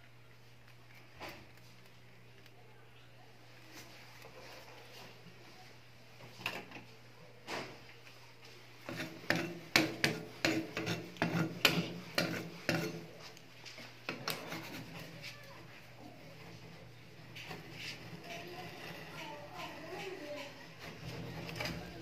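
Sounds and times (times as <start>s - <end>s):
metal spatula scraping steel pan: 8.9s - 13.1s.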